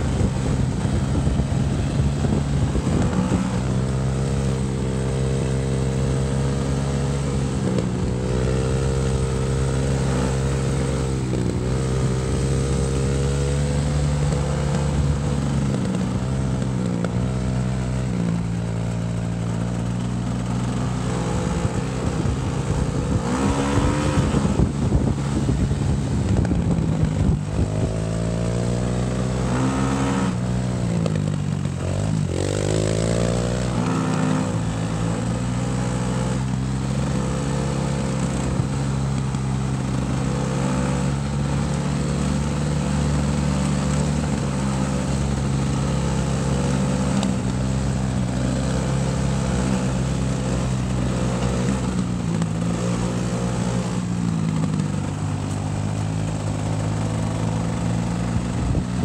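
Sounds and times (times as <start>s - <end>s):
dirt bike engine revving: 19.4s - 25.2s, 31.7s - 38.9s.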